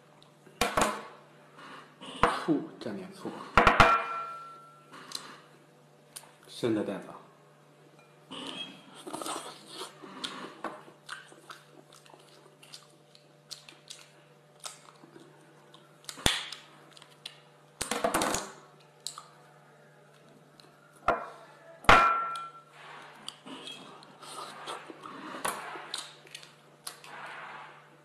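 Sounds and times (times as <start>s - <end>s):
chewing: 8.4s - 17.5s, 18.8s - 20.8s, 23.0s - 27.1s.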